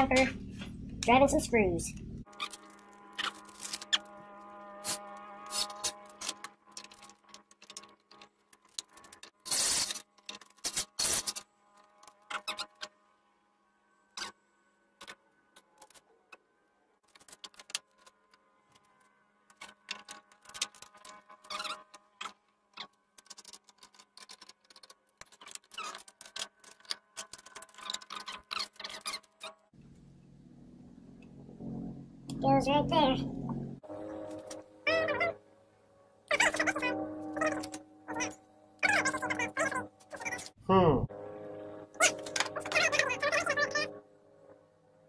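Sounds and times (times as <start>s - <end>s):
screws clicking and clinking: 19.6s - 29.5s.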